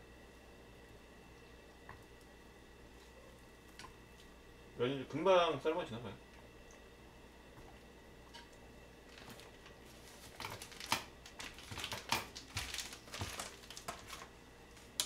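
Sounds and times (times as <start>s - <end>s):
packets crinkling and crackling: 9.1s - 15.0s.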